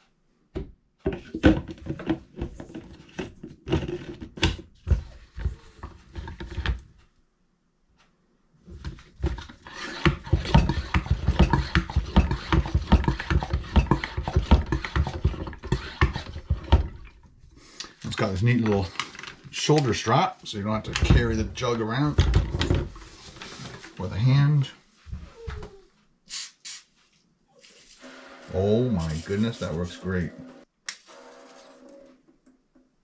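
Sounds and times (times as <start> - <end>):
hand pump strokes: 9.4 - 16.9.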